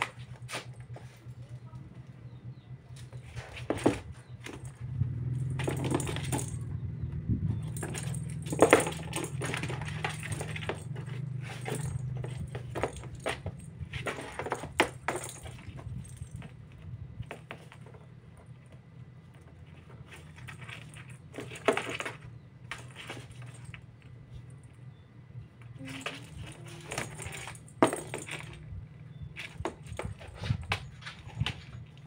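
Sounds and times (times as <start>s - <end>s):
low steady hum: 0.0s - 32.0s
bell ball jingling and rattling: 4.5s - 6.7s, 7.5s - 16.6s, 25.8s - 31.8s.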